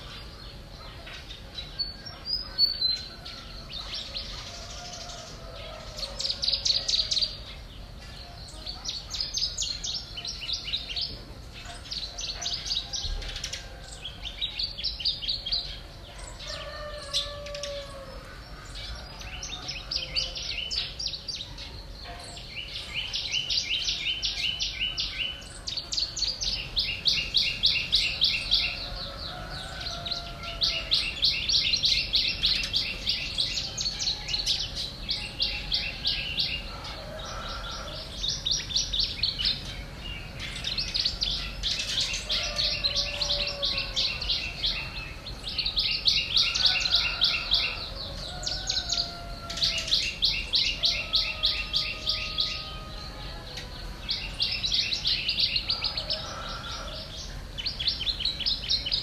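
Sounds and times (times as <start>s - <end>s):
songbirds trilling: 0.0s - 59.0s.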